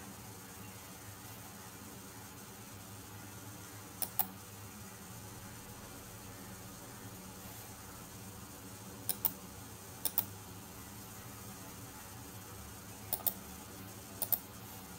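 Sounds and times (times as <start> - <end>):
low background hum: 0.0 - 14.9
computer mouse clicking: 4.0 - 4.3, 9.0 - 9.4, 10.0 - 10.3, 13.1 - 13.4, 14.2 - 14.5.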